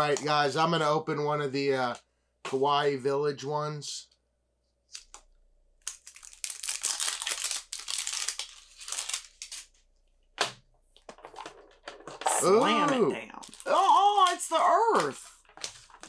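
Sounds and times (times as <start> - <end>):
packaging crinkling and tearing: 5.8 - 9.8, 12.2 - 16.0.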